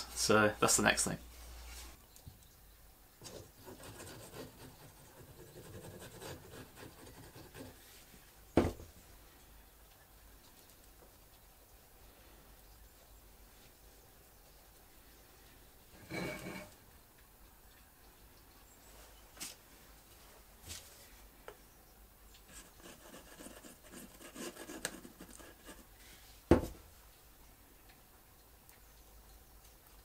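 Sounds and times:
finger rubbing glue on wood: 0:22.5 - 0:25.8.

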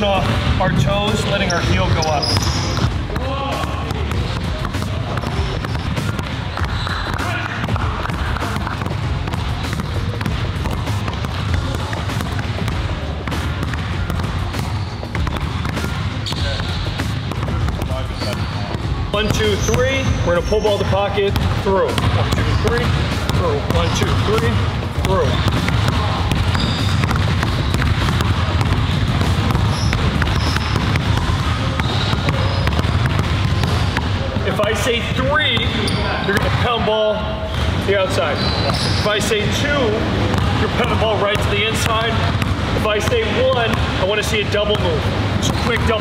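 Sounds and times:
basketball bouncing on hardwood: 0:00.0 - 0:34.8, 0:40.3 - 0:44.0, 0:44.8 - 0:46.0
sneaker squeaks: 0:01.1 - 0:39.6, 0:45.4 - 0:46.0.

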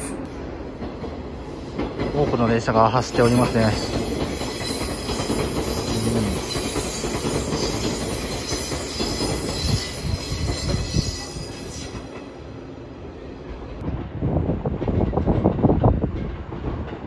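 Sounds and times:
clacks over rail joints: 0:00.7 - 0:12.3, 0:14.7 - 0:17.0
train wheels squealing on rails: 0:01.5 - 0:12.4
electric train running: 0:03.1 - 0:12.3.

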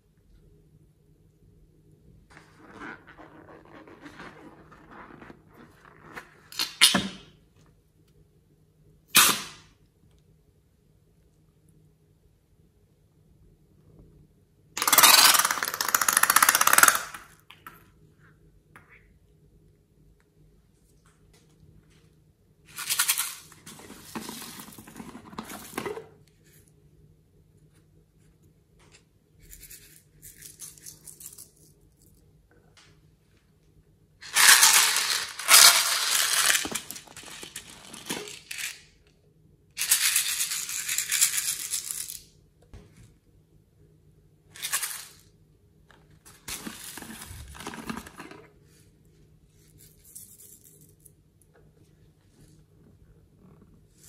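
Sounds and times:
plastic beads pouring into bowl: 0:14.8 - 0:17.0, 0:34.2 - 0:38.8.

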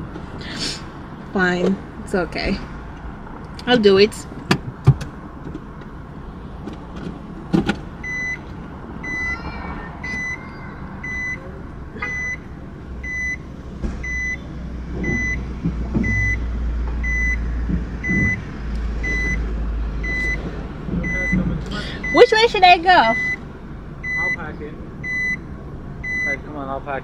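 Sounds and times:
car engine humming: 0:00.0 - 0:27.0
parking warning beeping: 0:08.0 - 0:19.4, 0:20.0 - 0:20.4, 0:21.0 - 0:26.5
sharp thump: 0:13.8 - 0:14.1.

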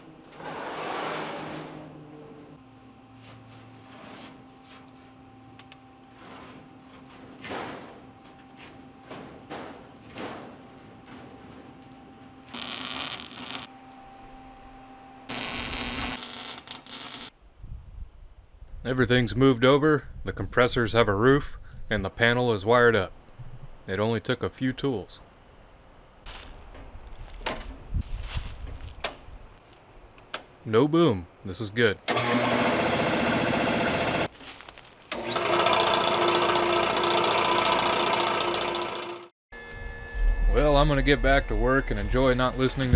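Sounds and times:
welder humming: 0:11.7 - 0:17.4, 0:32.1 - 0:34.3, 0:35.1 - 0:42.9
crackling hiss of welding arc: 0:12.5 - 0:13.7, 0:15.3 - 0:17.4
air compressor pump chattering: 0:35.1 - 0:39.2.

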